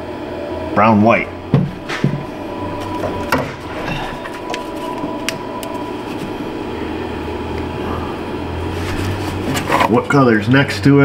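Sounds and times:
steady background hum: 0.0s - 11.0s.

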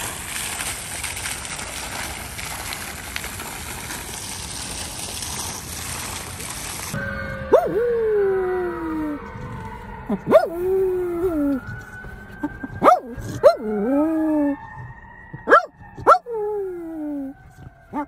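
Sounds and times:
dog whining and howling: 6.9s - 18.0s.

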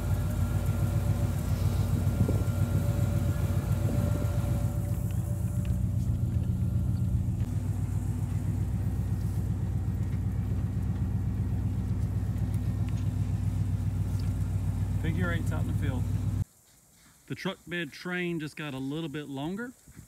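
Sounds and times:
truck engine low hum: 0.0s - 16.4s.

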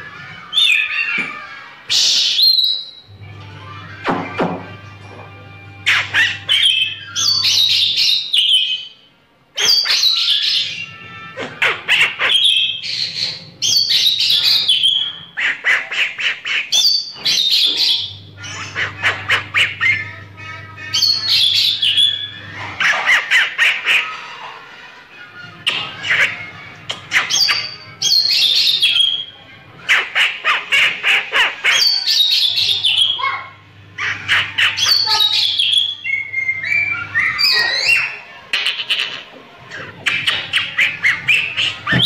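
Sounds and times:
bird singing varied song: 0.4s - 3.1s, 5.9s - 11.0s, 11.8s - 15.4s, 16.2s - 20.2s, 20.9s - 22.4s, 26.9s - 29.4s, 31.6s - 33.2s, 34.3s - 39.2s, 40.0s - 42.0s.

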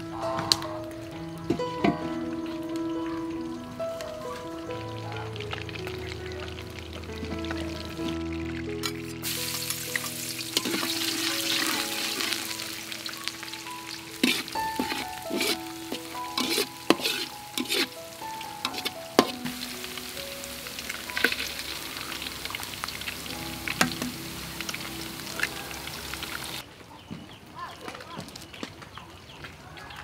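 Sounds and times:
hot oil sizzling in pan: 2.4s - 26.6s
knocks and scrapes against pan: 14.2s - 15.6s, 16.4s - 17.9s.

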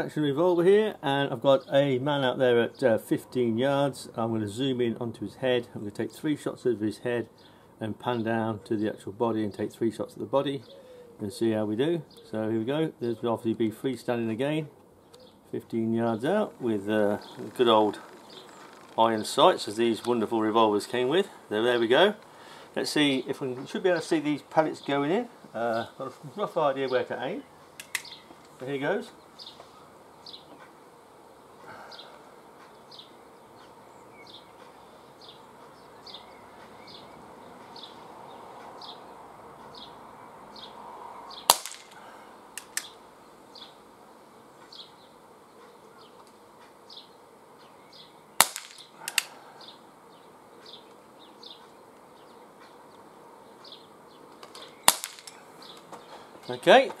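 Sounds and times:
air revolver shots: 41.5s - 43.0s, 48.4s - 49.4s, 54.8s - 55.4s.

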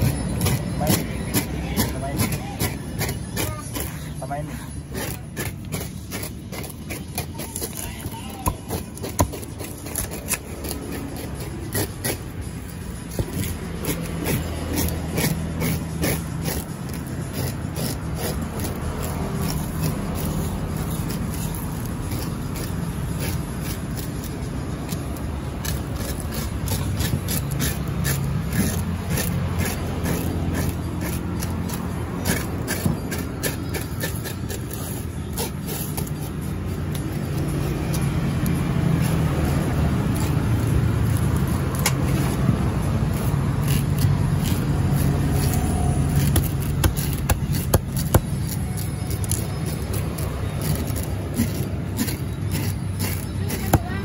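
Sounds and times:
knife scraping on chopping block: 0.0s - 54.0s
knife striking chopping block: 46.1s - 48.5s.

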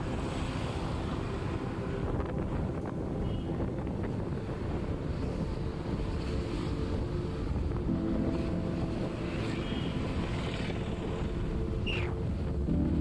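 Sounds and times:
vehicle rumble: 0.0s - 13.0s
wind buffeting microphone: 1.5s - 9.2s.

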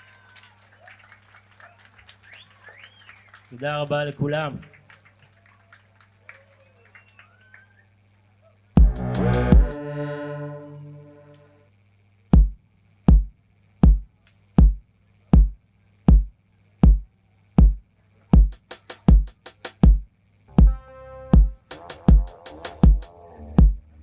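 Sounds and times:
kick drum steady beat: 8.8s - 9.8s, 12.3s - 20.8s, 21.4s - 23.8s
held synth chord: 8.8s - 11.6s, 20.5s - 22.5s
synth note: 8.8s - 11.6s
fast hi-hat ticks: 12.4s - 14.8s, 18.4s - 20.2s, 21.6s - 23.1s.

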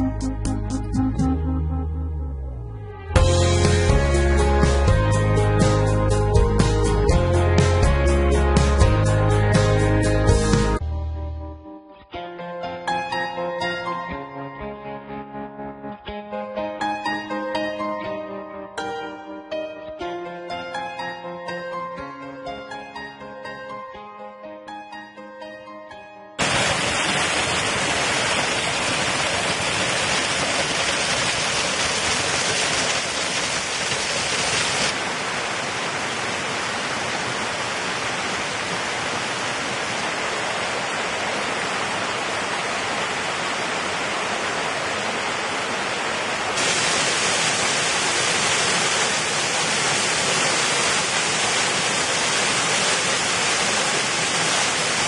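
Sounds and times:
stream over rocks: 26.4s - 55.0s
waterfall pouring: 26.4s - 55.0s.

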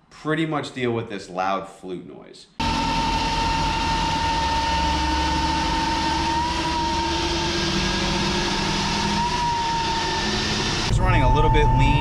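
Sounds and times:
turbo whistle: 2.6s - 12.0s.

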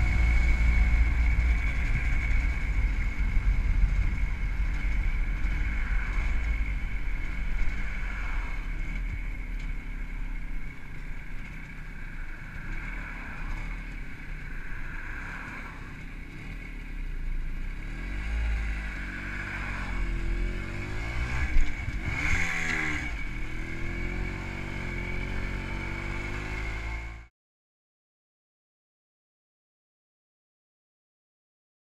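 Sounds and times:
two-stroke motorcycle engine running: 0.0s - 15.0s
wind rumble on microphone: 0.0s - 27.2s.

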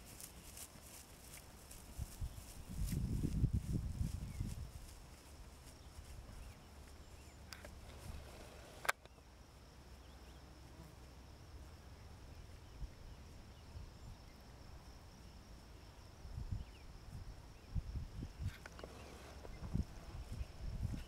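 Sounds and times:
high insect buzz: 0.0s - 21.0s
low wind rumble: 1.9s - 5.2s, 16.2s - 21.0s.

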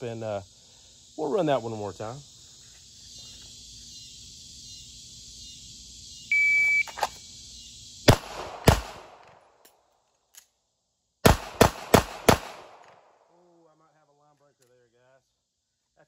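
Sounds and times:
insect chorus: 0.0s - 16.0s
pistol shots: 8.1s - 9.4s, 11.2s - 13.1s.

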